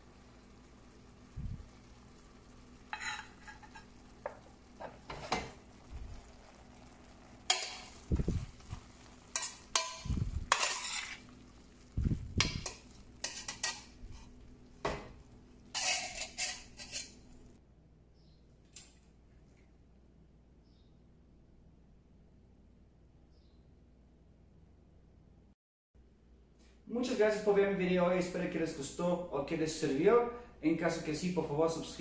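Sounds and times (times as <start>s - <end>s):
metal utensils scraping a pan: 2.9s - 5.6s, 7.5s - 11.5s, 12.4s - 14.4s, 15.7s - 17.3s.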